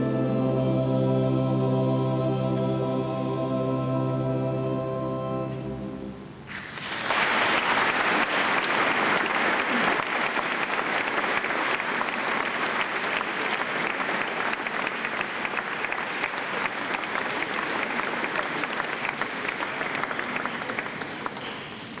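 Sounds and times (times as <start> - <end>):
choir and wind band chord: 0.0 - 6.3
audience applause: 6.5 - 22.0.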